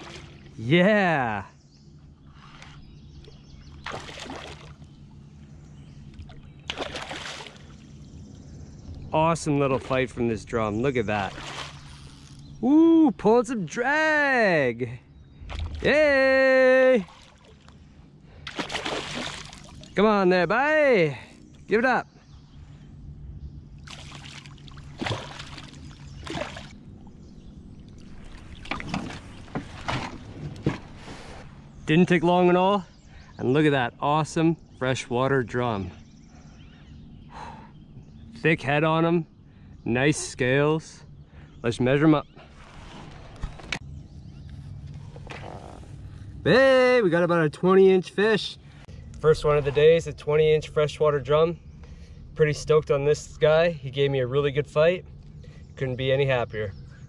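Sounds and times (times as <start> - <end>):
fish splashing at surface: 18.5 - 19.8, 23.9 - 26.8
knocks against canoe: 28.7 - 31.0.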